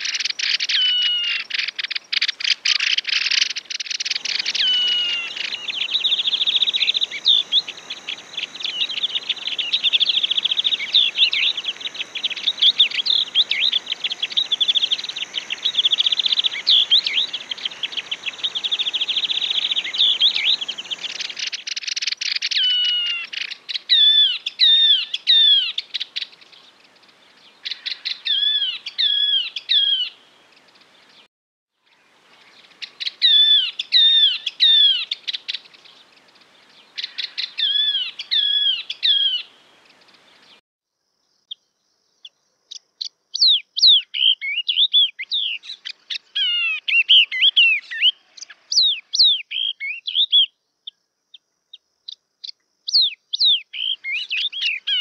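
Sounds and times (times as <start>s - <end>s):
bird whistled song: 0.0s - 26.3s, 32.5s - 36.0s, 37.0s - 39.5s, 43.4s - 50.6s, 52.4s - 55.0s.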